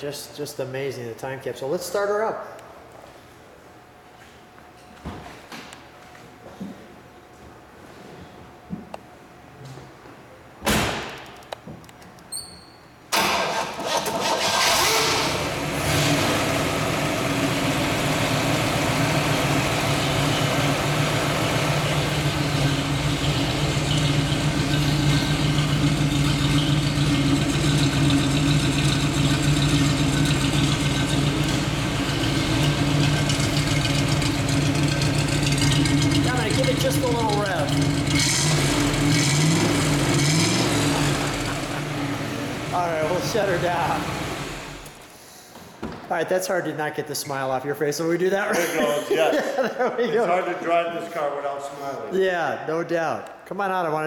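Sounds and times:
thump: 10.6 - 11.2
car engine starting and idling: 13.1 - 45.1.

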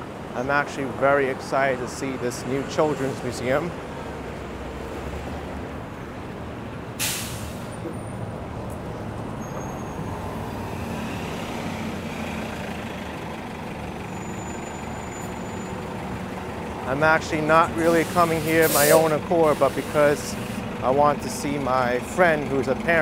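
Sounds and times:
street traffic: 0.0 - 23.0
heavy vehicle engine running: 2.6 - 23.0
air brake hiss: 7.0 - 7.8, 17.8 - 20.7.

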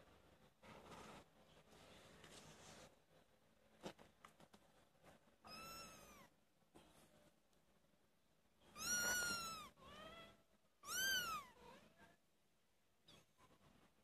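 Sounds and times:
kittens mewing: 8.8 - 11.7.

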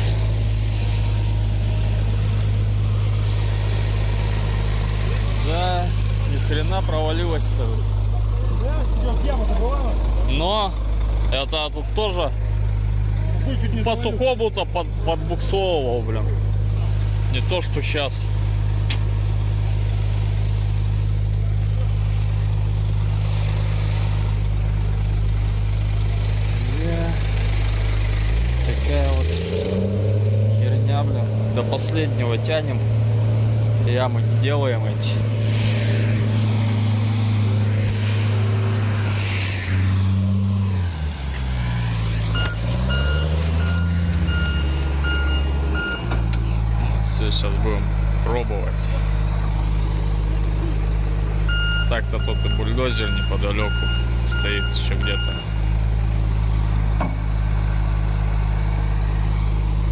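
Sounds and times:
diesel truck engine droning: 0.0 - 59.9
reversing alarm beeping: 42.3 - 46.2, 51.5 - 55.6.

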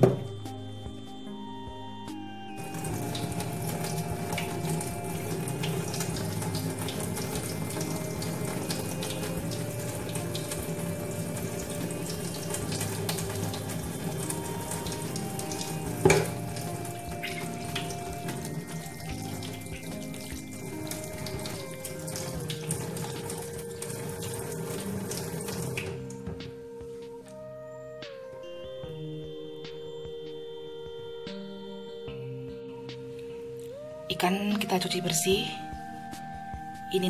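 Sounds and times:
soft background music: 0.0 - 37.0
tap water splashing into a sink: 2.6 - 26.2.

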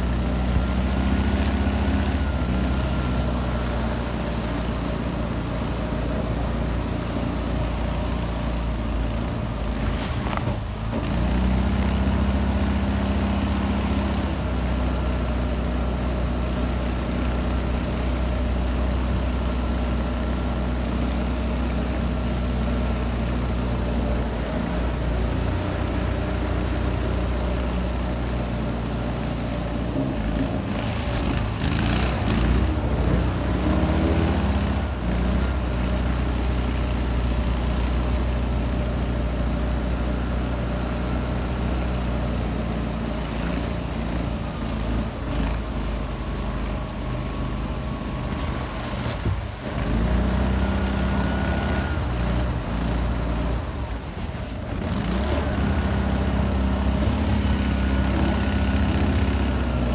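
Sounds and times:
boat motor running: 0.0 - 59.9.

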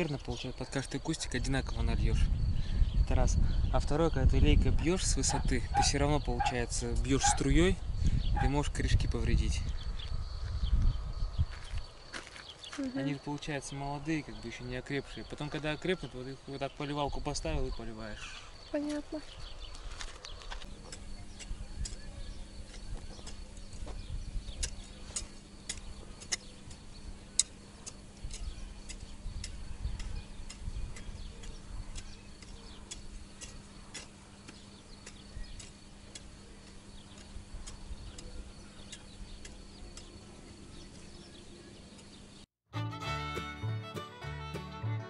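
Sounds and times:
wind on microphone: 1.6 - 11.9, 21.1 - 24.7.

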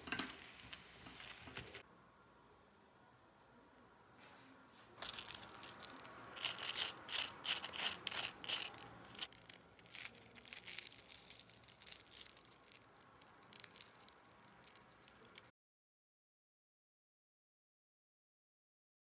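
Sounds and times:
fried potatoes crunching: 5.0 - 15.5.

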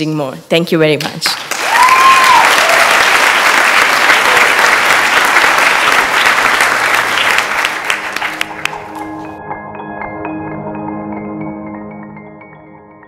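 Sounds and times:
audience applauding: 1.4 - 9.0
soft music: 7.4 - 13.0.

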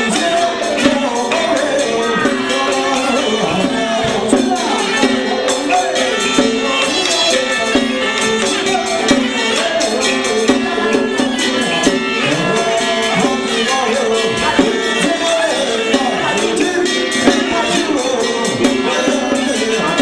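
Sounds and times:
fast continuous percussion strikes: 0.0 - 20.0
wavering ritual melody: 0.0 - 20.0.

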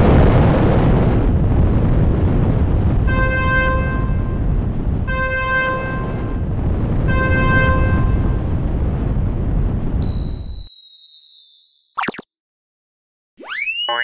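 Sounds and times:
train rumbling: 0.0 - 10.0
train horn toots: 3.1 - 4.4, 5.1 - 6.4, 7.1 - 8.4.

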